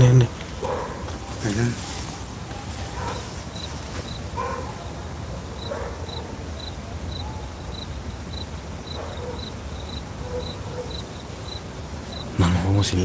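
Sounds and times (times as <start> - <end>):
cricket chirping: 0.0 - 13.0
dog barking: 0.6 - 7.8, 8.9 - 11.2.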